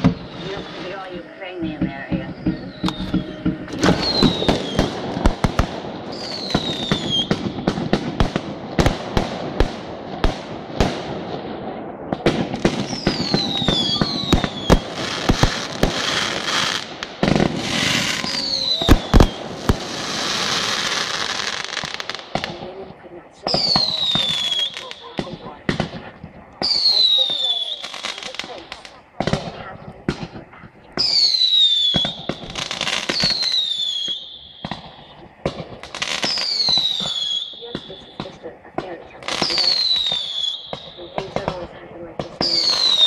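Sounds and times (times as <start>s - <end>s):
fireworks whistles falling in pitch: 0.0s - 7.9s, 12.6s - 22.5s, 23.5s - 26.0s, 26.6s - 29.4s, 31.0s - 38.5s, 39.1s - 41.6s, 42.4s - 43.0s
fireworks bangs and crackles: 0.0s - 43.0s.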